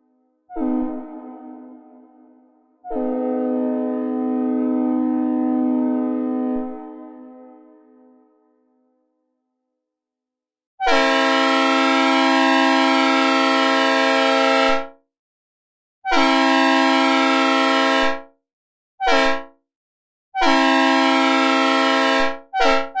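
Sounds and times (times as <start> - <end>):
locomotive air horn blasts: 0.5 - 8.2, 10.8 - 14.8, 16.1 - 18.3, 19.0 - 19.5, 20.4 - 23.0.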